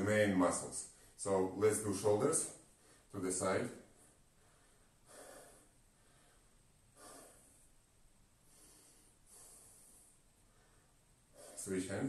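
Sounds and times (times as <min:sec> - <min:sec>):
man breathing softly: 0:00.9 - 0:01.2, 0:02.7 - 0:03.1, 0:03.8 - 0:12.0.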